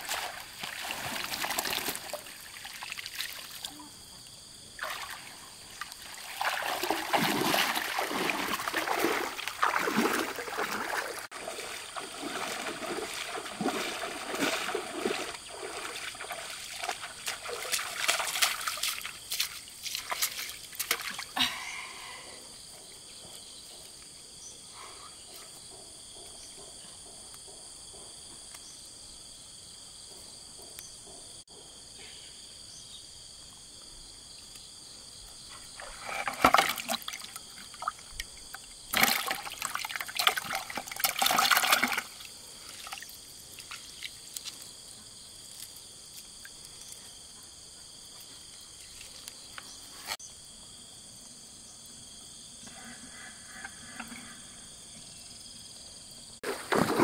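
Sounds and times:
water splashing and trickling: 0:00.0 - 0:03.9, 0:04.7 - 0:21.9, 0:35.5 - 0:44.9, 0:56.4 - 0:57.0.

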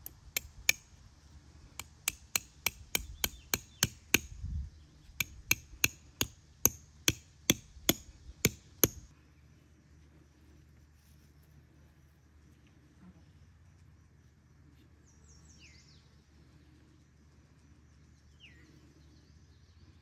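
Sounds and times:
hatchet hammering tent stake: 0:00.0 - 0:00.9, 0:01.8 - 0:04.4, 0:05.1 - 0:09.1.

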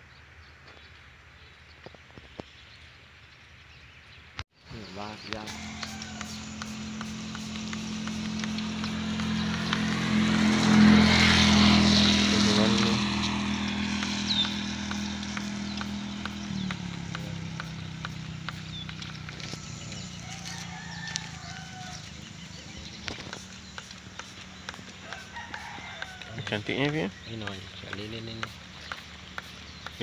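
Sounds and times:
engine humming: 0:04.7 - 0:30.0
rooster crowing: 0:05.3 - 0:07.4, 0:20.1 - 0:22.2, 0:25.0 - 0:26.7
small bird chirps: 0:10.8 - 0:30.0.

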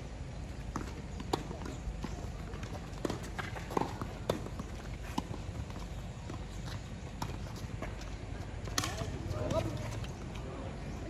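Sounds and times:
tennis ball struck by racquets: 0:00.8 - 0:05.4.

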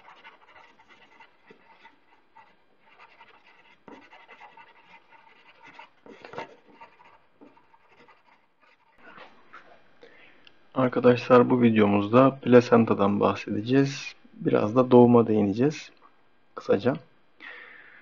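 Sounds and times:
felt-tip marker scratching paper: 0:00.0 - 0:09.0.

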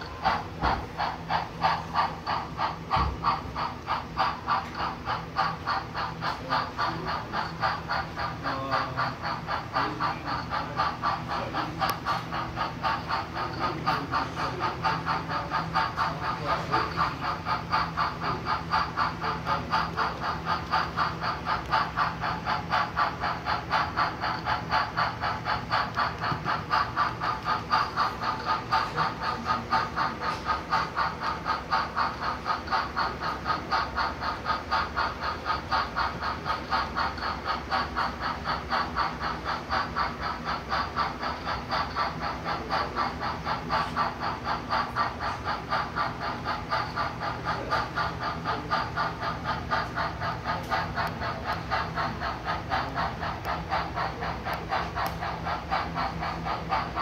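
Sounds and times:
model train chuffing: 0:00.0 - 0:57.0.

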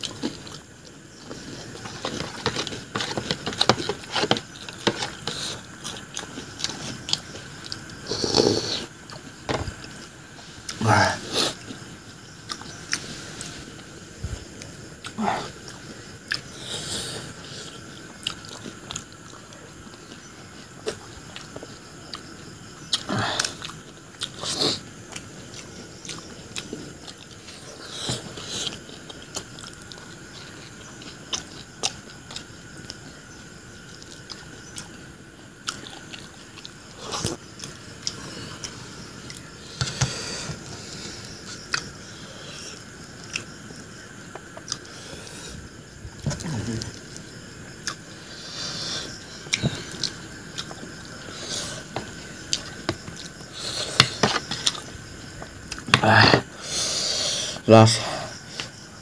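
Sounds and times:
crunching and chewing: 0:00.0 - 0:57.6.

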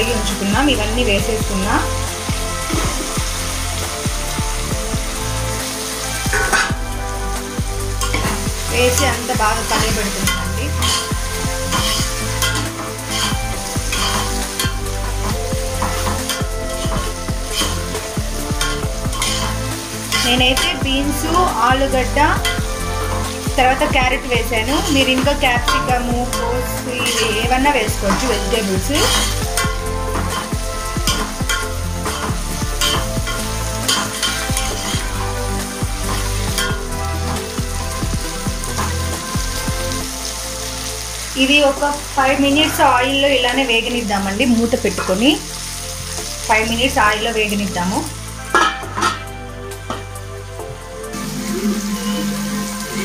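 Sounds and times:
frying sizzle: 0:00.0 - 0:53.0
metal spoon scraping pot: 0:10.1 - 0:20.8, 0:22.3 - 0:22.8, 0:24.6 - 0:36.9, 0:48.5 - 0:49.3.

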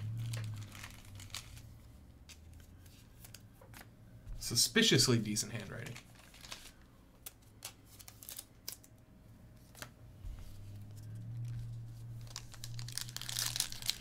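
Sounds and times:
foil card pack crinkling: 0:00.0 - 0:03.4, 0:05.4 - 0:08.9, 0:11.4 - 0:14.0
low steady hum: 0:00.0 - 0:14.0.

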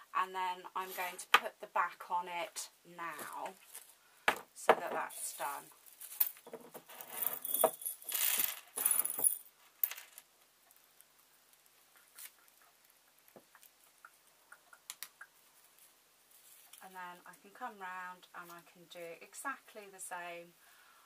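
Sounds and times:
small parts rattling in ceramic mug: 0:06.2 - 0:10.2.

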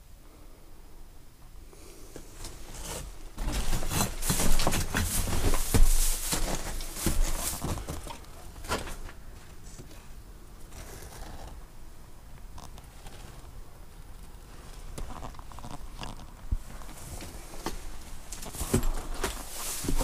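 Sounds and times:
footsteps crunching over rubble: 0:02.4 - 0:09.7, 0:14.3 - 0:20.0.

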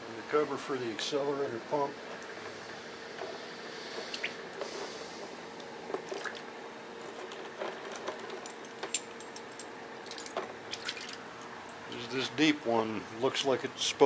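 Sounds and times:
faint steady hum: 0:00.0 - 0:14.0
small metal parts clicking: 0:07.2 - 0:11.8.

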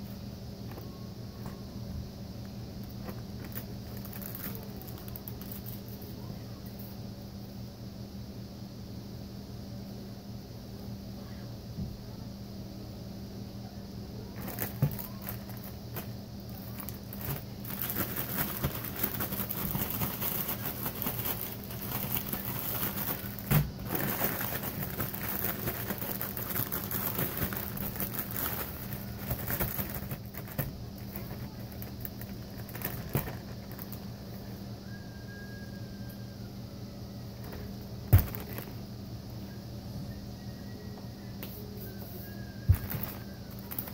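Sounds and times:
steady low hum: 0:00.0 - 0:43.9
plastic bag crinkling and rustling: 0:03.0 - 0:06.0, 0:14.4 - 0:34.0, 0:37.4 - 0:38.8, 0:42.7 - 0:43.9.

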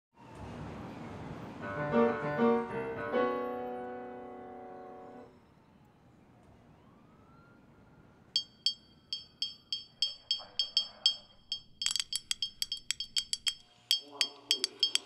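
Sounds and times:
glass bottles clinking rhythmically: 0:08.4 - 0:15.0.

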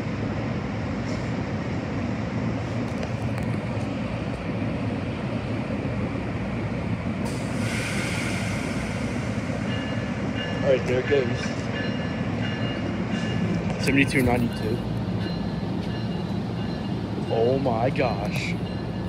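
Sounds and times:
train engine rumble and hum: 0:00.0 - 0:19.0
air hiss: 0:07.2 - 0:09.7.

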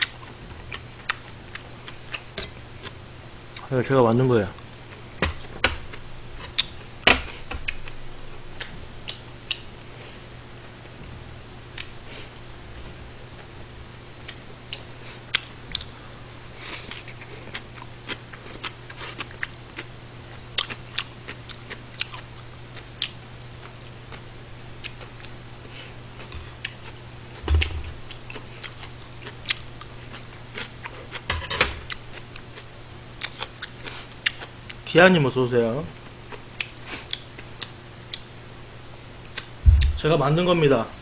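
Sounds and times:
chewing: 0:00.0 - 0:03.7, 0:16.6 - 0:19.9, 0:20.6 - 0:24.2, 0:24.8 - 0:27.4, 0:28.1 - 0:31.3, 0:31.9 - 0:34.5, 0:36.3 - 0:38.3
steady low hum: 0:00.0 - 0:41.0
dull knock: 0:27.5 - 0:27.9, 0:39.7 - 0:40.0.

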